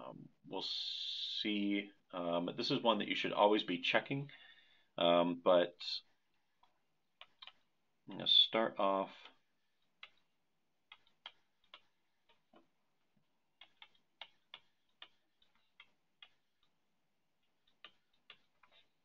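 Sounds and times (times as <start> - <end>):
stylus tapping on tablet screen: 6.4 - 7.7, 9.8 - 19.0.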